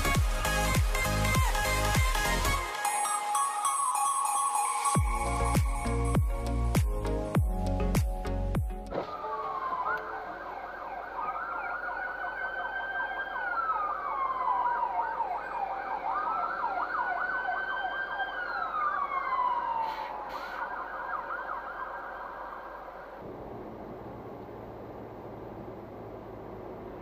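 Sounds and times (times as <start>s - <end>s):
emergency siren wailing: 0.0s - 6.8s, 8.9s - 23.3s.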